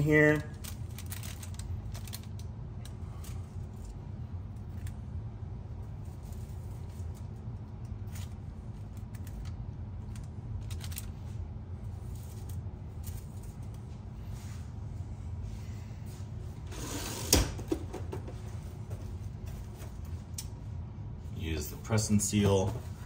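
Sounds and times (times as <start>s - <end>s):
paper envelopes rustling: 0.0s - 5.0s, 5.9s - 14.5s
steady low hum: 0.0s - 23.0s.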